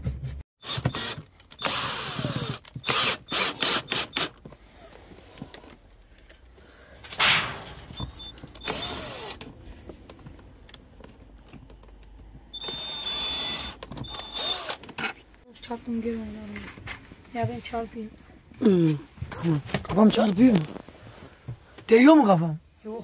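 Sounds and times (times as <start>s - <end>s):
cordless drill driving screws: 0.6s - 4.4s, 8.6s - 9.4s, 12.5s - 15.2s.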